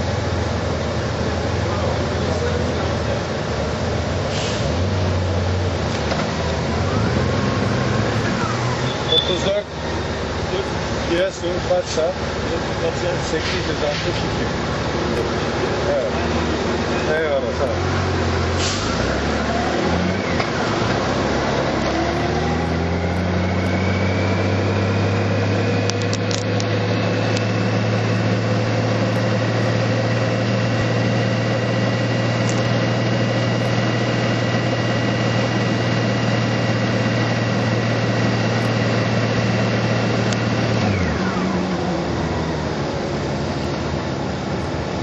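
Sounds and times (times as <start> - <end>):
vehicle engine pulling away: 0.0 - 45.0.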